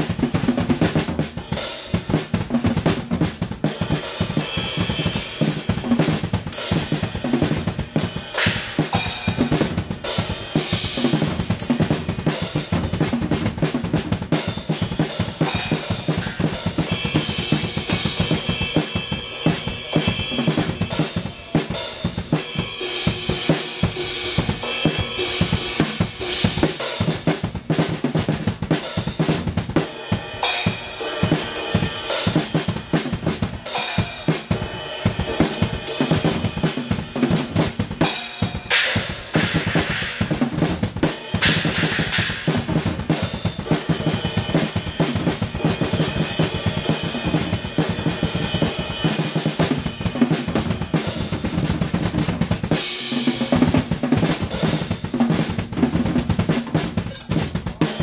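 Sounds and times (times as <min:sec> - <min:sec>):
acoustic drum kit playing: 0:00.0 - 0:58.0
cymbal crashes: 0:38.2 - 0:40.3, 0:41.2 - 0:42.7.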